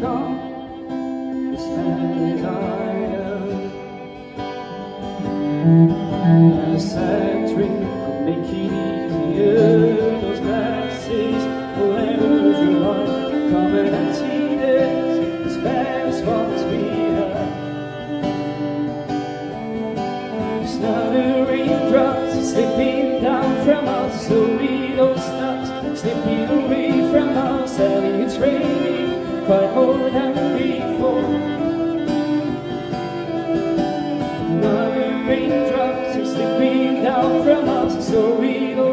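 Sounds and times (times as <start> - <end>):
acoustic guitar strumming: 0.0 - 38.9
bowed cello melody: 0.0 - 38.9.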